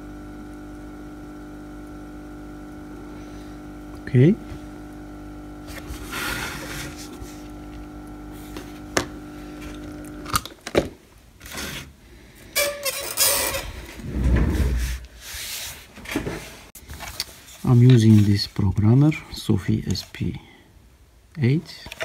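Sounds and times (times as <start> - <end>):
machine hum: 0.0 - 10.6, 11.2 - 16.4.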